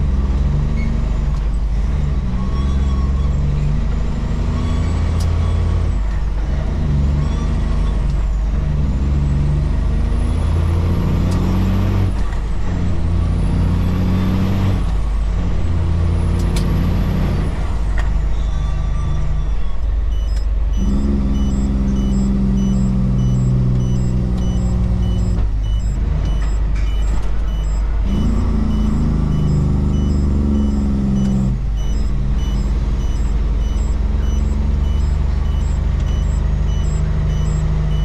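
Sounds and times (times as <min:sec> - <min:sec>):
truck diesel engine pulling: 0:00.0 - 0:38.0
faint high beeps: 0:18.4 - 0:38.0.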